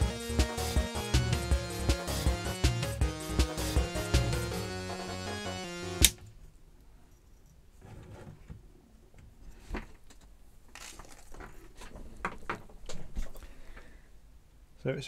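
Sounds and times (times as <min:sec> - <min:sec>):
background music: 0:00.0 - 0:06.3.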